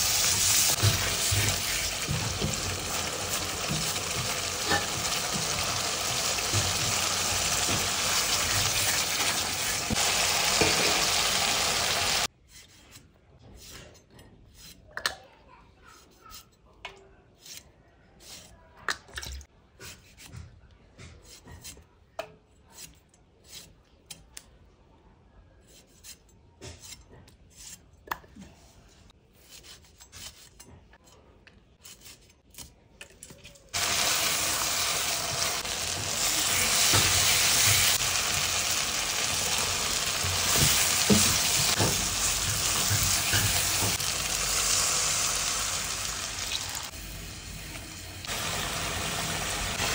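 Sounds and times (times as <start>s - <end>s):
curry sizzling in a pan: 0.0s - 12.3s, 33.8s - 49.9s
knife slicing vegetables: 25.6s - 27.9s, 29.2s - 31.2s.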